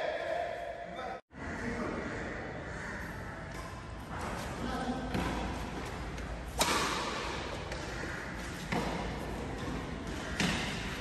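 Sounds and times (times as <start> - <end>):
badminton racket hitting shuttlecock: 4.9 - 11.0.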